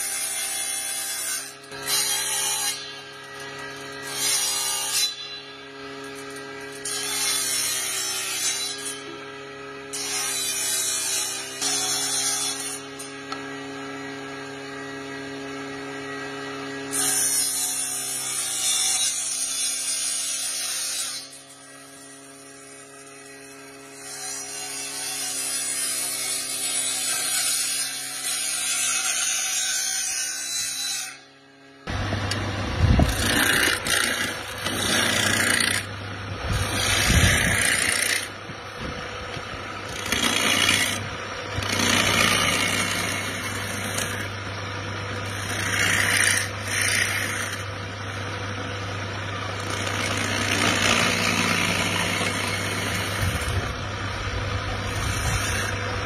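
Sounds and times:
electric cutter humming: 0.0s - 56.0s
cutter biting into wood: 31.9s - 44.4s, 49.5s - 53.8s, 54.6s - 55.8s
lathe spinning: 31.9s - 56.0s
hand chisel cutting bursts: 33.0s - 35.9s, 36.5s - 38.3s, 39.8s - 44.4s, 45.2s - 47.7s, 49.6s - 53.5s.

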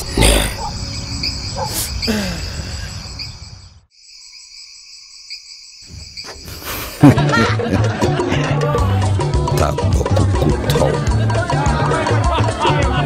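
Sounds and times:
crickets chirring: 0.0s - 7.4s.

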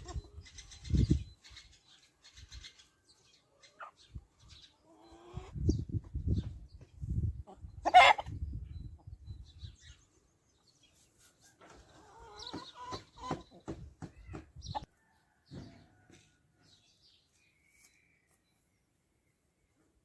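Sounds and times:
chickens clucking softly: 4.7s - 6.1s, 7.2s - 9.2s, 11.4s - 16.6s.

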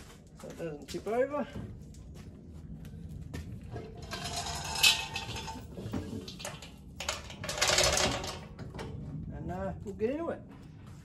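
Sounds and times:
metal rattling and scraping: 3.6s - 9.6s.

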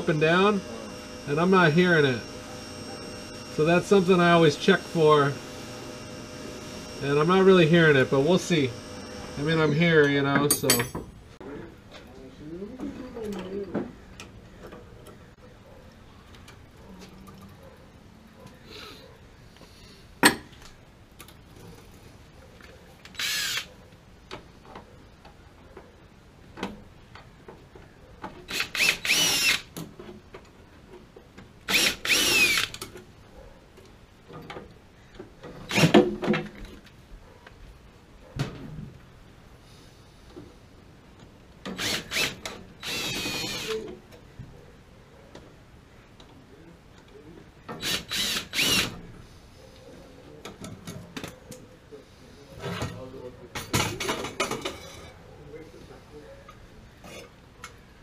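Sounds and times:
cordless drill motor whining: 0.0s - 10.0s, 23.2s - 23.7s, 28.5s - 29.7s, 31.7s - 32.8s, 35.7s - 36.0s, 41.8s - 43.9s, 47.8s - 49.0s.

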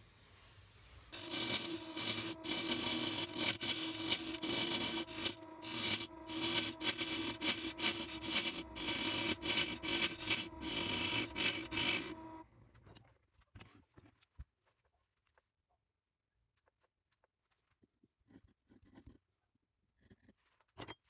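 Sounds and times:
gouge scraping wood: 1.1s - 12.4s
wood lathe humming: 1.1s - 12.4s.

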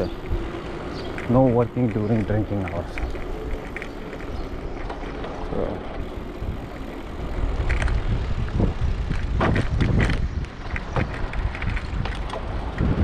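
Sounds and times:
bicycle tyres rumbling on paving: 0.0s - 13.0s
wind on microphone: 7.4s - 13.0s.

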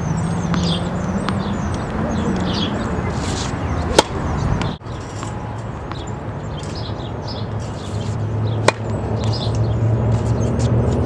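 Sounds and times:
birds chirping: 0.0s - 10.8s
tennis racket striking ball: 0.4s - 5.3s, 8.0s - 11.0s.

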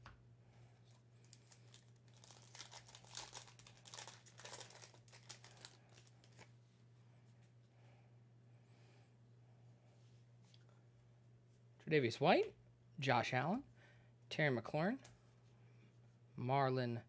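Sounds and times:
low steady hum: 0.0s - 17.0s
foil wrapper tearing and crinkling: 1.3s - 6.5s.

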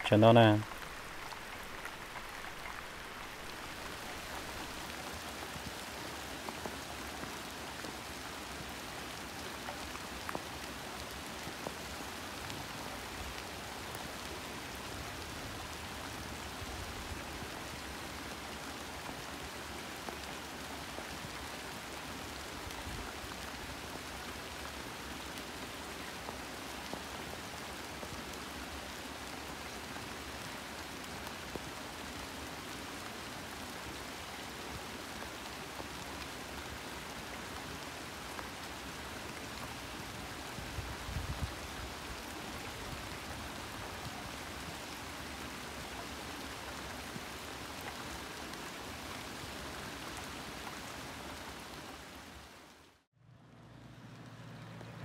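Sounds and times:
steady even hiss: 0.0s - 5.1s.

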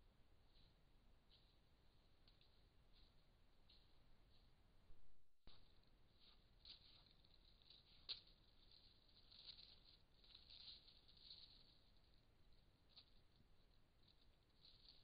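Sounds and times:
deer rustling dry leaves: 5.7s - 15.0s.

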